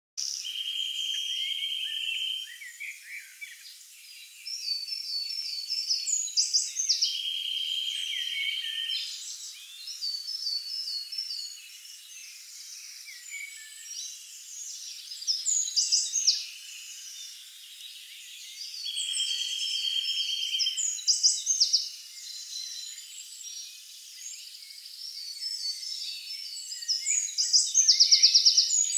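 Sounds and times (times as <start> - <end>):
short whistled bird phrases: 0.2 - 3.7, 4.5 - 11.6, 18.5 - 23.0, 25.4 - 28.9.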